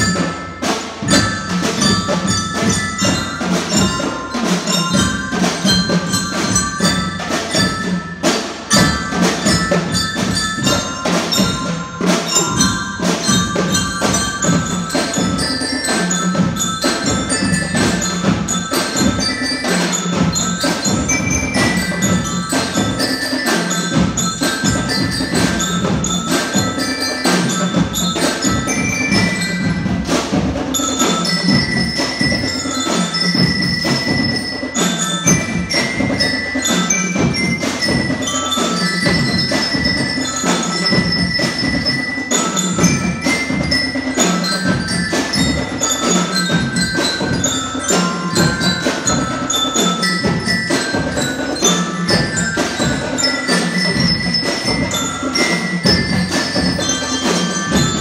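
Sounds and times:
rapid drum beat: 0.0 - 58.0
xylophones playing melody: 0.0 - 58.0.

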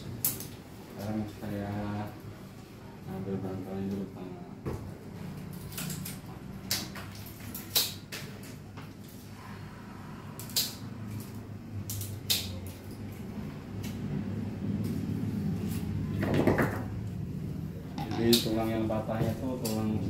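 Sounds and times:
steady low hum: 8.7 - 20.0.

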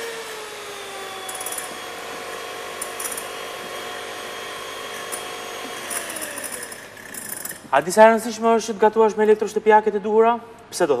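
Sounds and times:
electric hand mixer running: 0.0 - 7.6.

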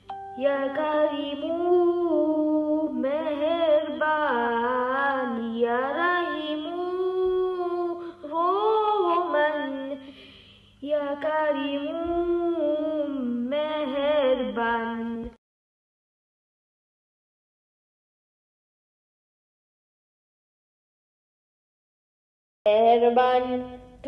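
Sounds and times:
woman singing devotional song: 0.1 - 15.4.

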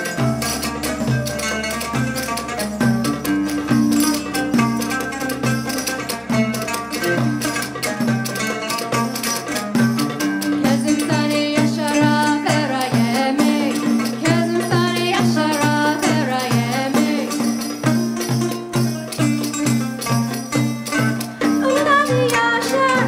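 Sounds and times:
wavering melody line: 0.0 - 17.0
hand drum beating: 0.0 - 23.0
lute playing: 0.0 - 23.0.

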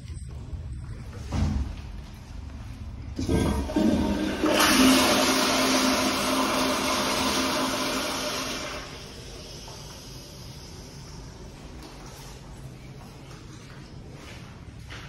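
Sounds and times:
toilet flushing: 3.2 - 11.6.

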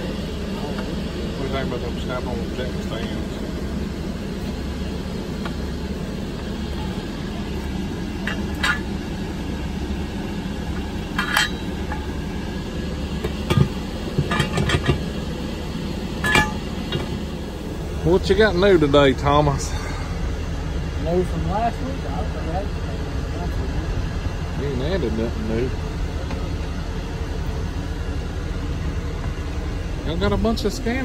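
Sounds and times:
steady low hum: 0.0 - 31.0
metallic clinks and clanks: 11.1 - 12.2.

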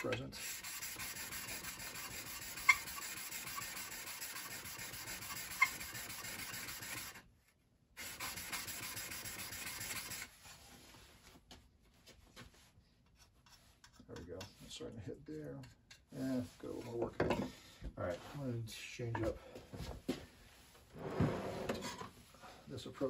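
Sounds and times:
scraper rasping on sharpening stone: 0.0 - 7.2, 8.0 - 10.3.

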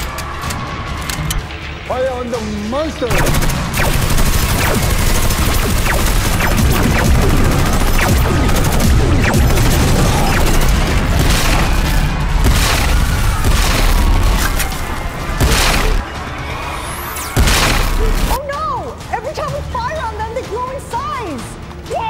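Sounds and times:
rapid gunfire: 3.1 - 16.0, 17.3 - 18.4
booming explosions: 3.1 - 16.1, 17.4 - 18.4.

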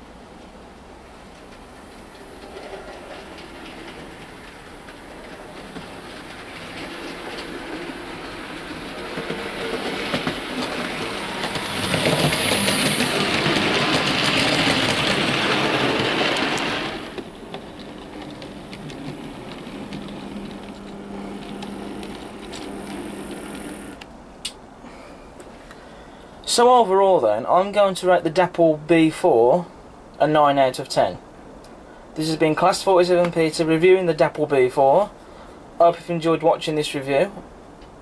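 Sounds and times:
low motor hum: 1.1 - 24.4
model train wheels clicking: 1.3 - 24.1.

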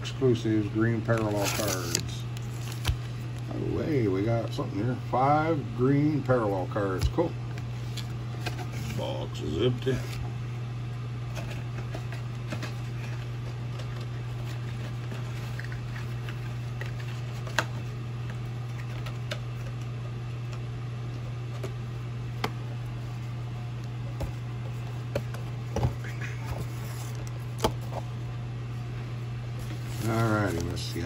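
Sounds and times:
low electrical hum: 0.0 - 31.0
card packs clicking and tapping: 29.6 - 31.0.

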